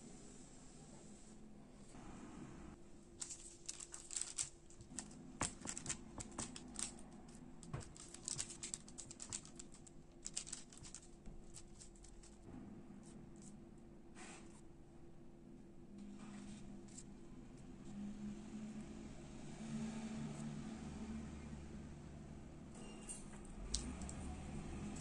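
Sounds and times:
baking paper crinkling: 3.2s - 12.4s.

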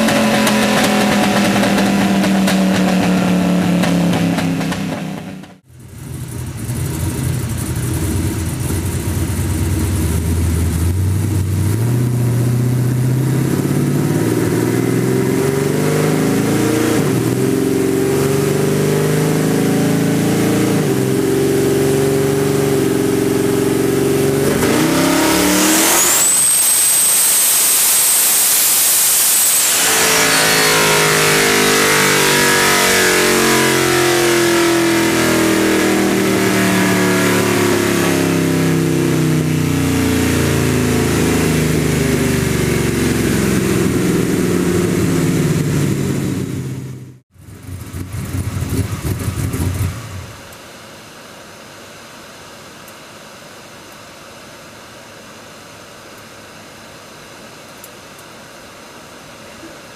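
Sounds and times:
engine revving hard: 0.0s - 5.6s, 10.1s - 50.4s
turbo intake rush and whistle: 0.0s - 5.6s, 6.3s - 50.4s.

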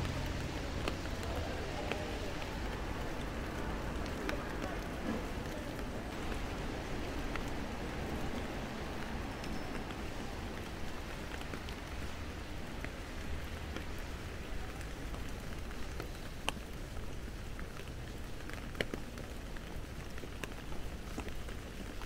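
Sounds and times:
sharp drips and taps: 0.0s - 7.6s, 12.8s - 22.0s
rain on wet pavement: 0.0s - 22.0s.

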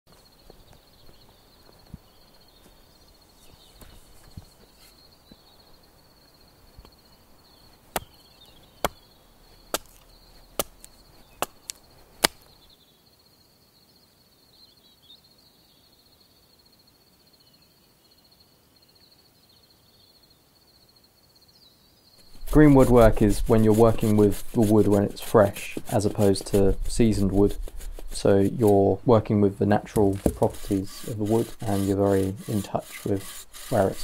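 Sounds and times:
hatchet chopping wood: 7.9s - 8.2s, 8.8s - 9.0s, 9.7s - 10.0s, 10.6s - 12.5s, 30.0s - 33.8s.

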